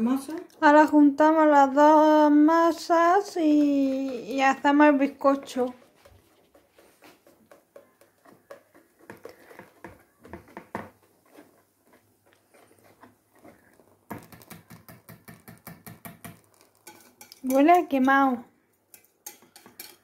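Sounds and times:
batter pouring clicks: 0:14.1 - 0:17.4.

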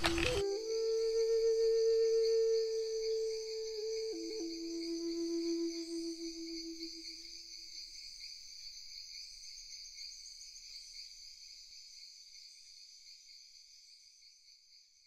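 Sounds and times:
flute note: 0:00.0 - 0:07.2
insects chirping: 0:00.0 - 0:15.0.

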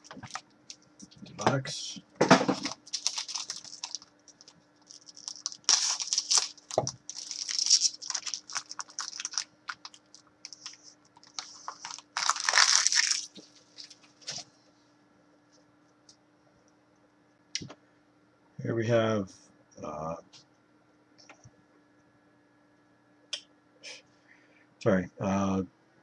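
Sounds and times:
wrapper tearing and crinkling: 0:00.0 - 0:00.4, 0:02.5 - 0:14.0
cards shuffled by hand: 0:02.5 - 0:14.4.

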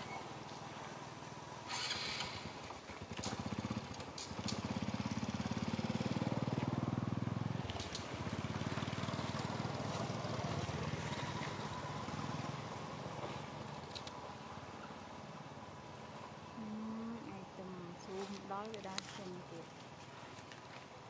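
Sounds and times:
small engine pulsing: 0:00.0 - 0:15.0.

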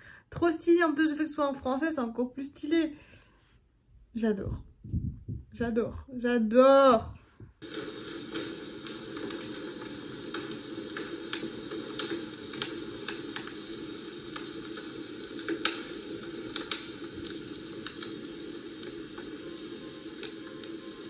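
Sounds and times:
low hiss: 0:07.6 - 0:21.0
wood fire crackling: 0:07.6 - 0:21.0.

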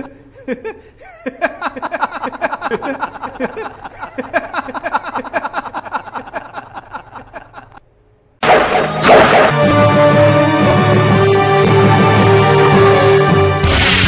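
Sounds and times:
man laughing maniacally: 0:00.0 - 0:07.8
loud crash: 0:08.4 - 0:09.8, 0:13.6 - 0:14.0.

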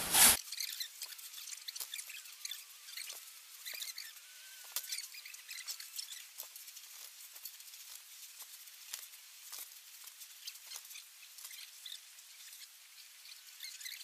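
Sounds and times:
snow shovels scraping snow: 0:00.0 - 0:00.4
steady hiss: 0:00.0 - 0:00.4.

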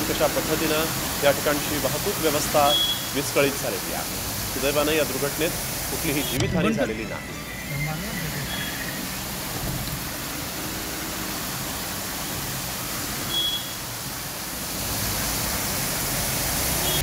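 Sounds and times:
heavy rain pouring: 0:00.0 - 0:17.0
short high tone: 0:06.3 - 0:09.2.

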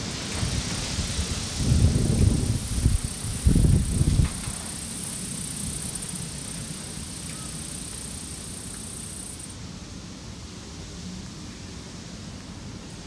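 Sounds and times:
wind rumbling on microphone: 0:00.2 - 0:04.9.

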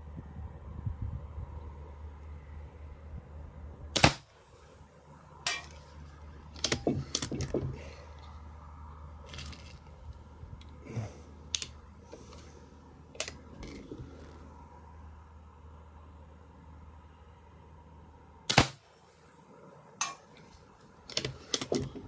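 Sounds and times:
handling clicks and knocks: 0:06.5 - 0:07.8, 0:09.2 - 0:09.9, 0:21.1 - 0:22.0.

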